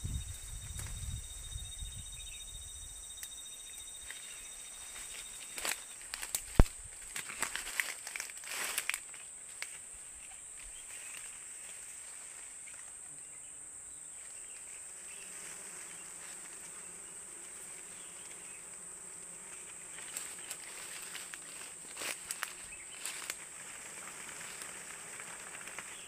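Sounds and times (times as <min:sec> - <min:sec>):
insects droning: 0:00.0 - 0:26.0
leaves rustling: 0:03.9 - 0:12.9, 0:19.4 - 0:26.0
branch clicks: 0:05.0 - 0:09.8.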